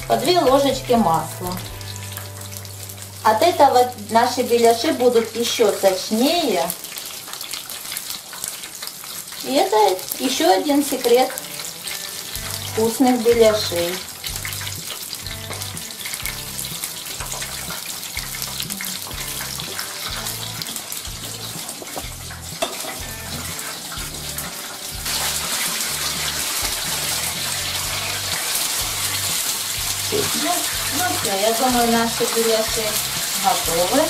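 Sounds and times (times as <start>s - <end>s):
bass line music: 0.0s - 5.2s, 12.2s - 34.0s
pies sizzling in hot oil: 0.0s - 34.0s.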